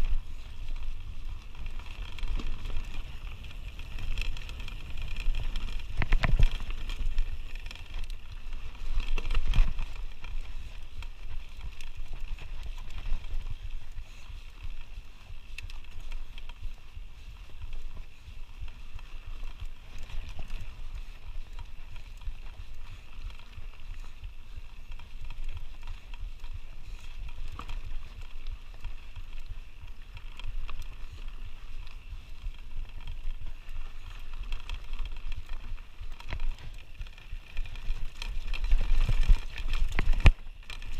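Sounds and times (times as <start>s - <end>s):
sharp rattling knocks over rocks: 0.0s - 13.6s, 32.1s - 40.9s
bike rattling: 0.0s - 40.9s
low wind rumble on microphone: 0.0s - 40.9s
tyres crunching over dirt and stones: 0.0s - 40.9s.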